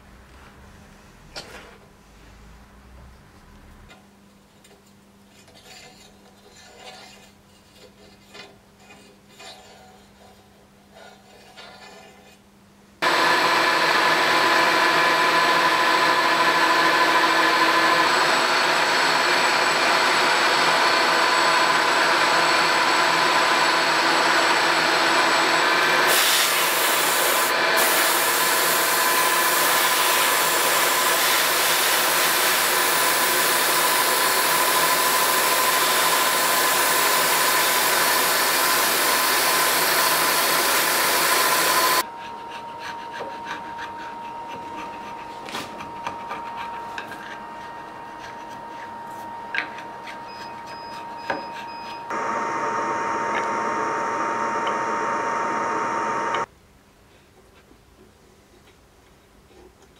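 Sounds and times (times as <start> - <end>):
milling machine cutting wood: 27.3 - 42.0, 52.1 - 56.5.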